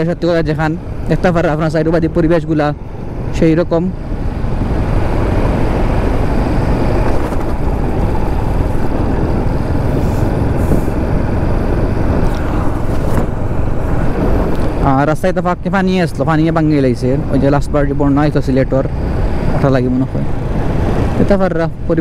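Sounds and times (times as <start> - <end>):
motorcycle engine running: 0.0 - 16.3
wind buffeting microphone: 3.9 - 14.8.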